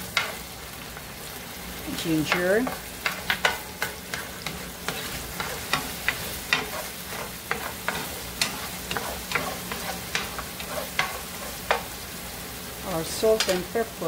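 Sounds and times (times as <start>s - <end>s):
food sizzling in oil: 0.0s - 14.0s
utensil scraping a pan: 2.0s - 12.0s.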